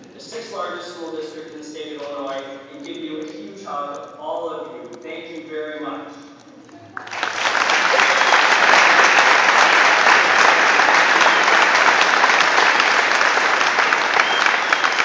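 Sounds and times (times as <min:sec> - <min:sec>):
audience applauding: 0:06.9 - 0:15.0.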